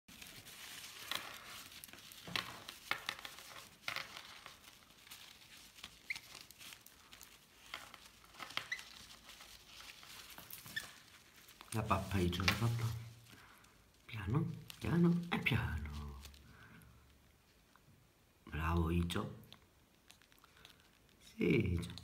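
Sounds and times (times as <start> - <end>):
paper towel rustling: 0.1 - 17.6.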